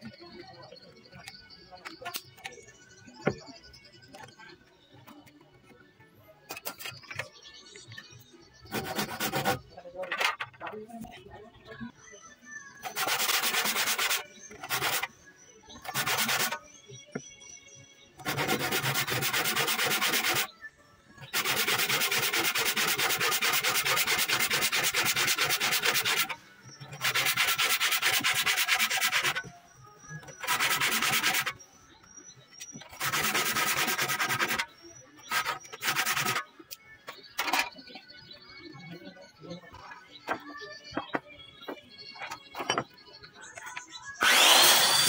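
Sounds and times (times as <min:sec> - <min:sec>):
hand saw cutting wood: 0:44.2 - 0:45.0.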